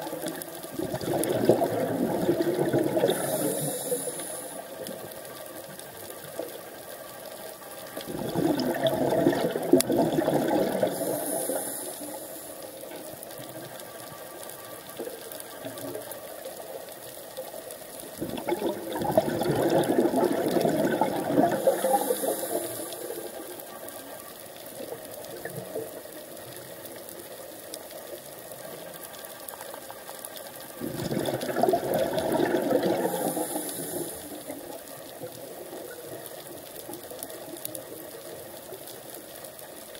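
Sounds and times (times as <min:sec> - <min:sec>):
exhaled bubbles underwater: 0:00.0 - 0:06.8, 0:07.9 - 0:14.4, 0:18.0 - 0:28.9, 0:30.6 - 0:39.2
regulator hiss: 0:03.0 - 0:05.6, 0:10.8 - 0:13.2, 0:21.5 - 0:24.8, 0:32.9 - 0:35.7.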